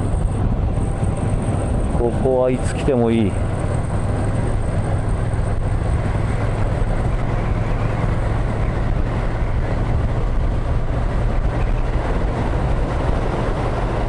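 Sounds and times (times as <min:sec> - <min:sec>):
motorcycle engine cruising: 0:00.0 - 0:14.0
wind rush: 0:00.0 - 0:14.0.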